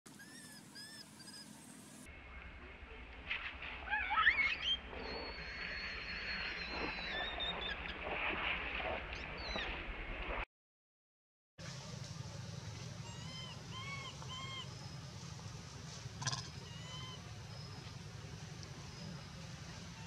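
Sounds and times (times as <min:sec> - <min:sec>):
infant monkey squealing: 0:00.1 - 0:01.5, 0:03.9 - 0:04.8, 0:13.1 - 0:14.7, 0:16.2 - 0:17.2.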